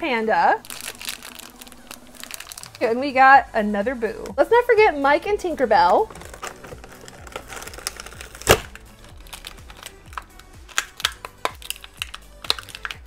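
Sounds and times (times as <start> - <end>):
plastic blister pack crinkling: 0.6 - 3.0, 5.8 - 13.0
plastic snap: 8.4 - 8.8, 9.7 - 13.0.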